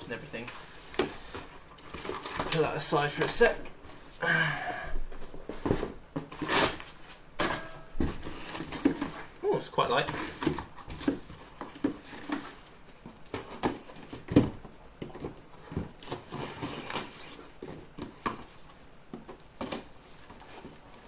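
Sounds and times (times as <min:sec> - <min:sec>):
cardboard rustle: 0:08.0 - 0:21.0.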